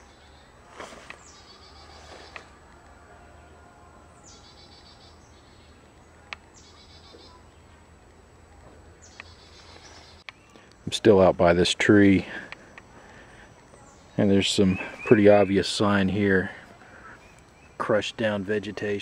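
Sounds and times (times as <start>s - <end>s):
sharp clicks: 9.1s - 10.8s.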